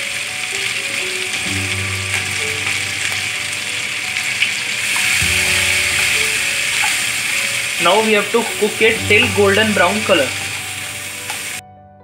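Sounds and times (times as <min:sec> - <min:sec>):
onions sizzling in oil: 0:00.0 - 0:11.6.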